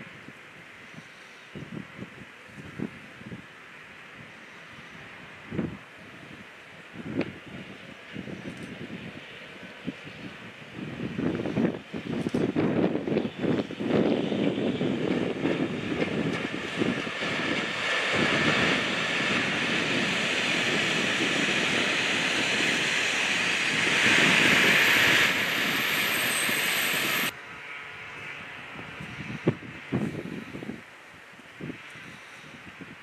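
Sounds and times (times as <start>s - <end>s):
faint outdoor ambience: 0.0s - 33.0s
train wheels rumbling on track: 4.8s - 30.7s
thin high whine: 21.8s - 27.8s.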